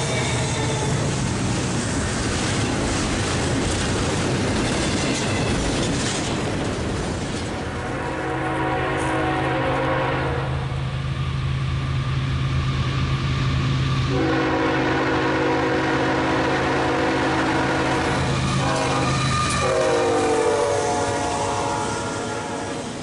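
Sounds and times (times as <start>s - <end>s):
locomotive air horn blasts: 7.8s - 10.6s, 14.1s - 22.9s.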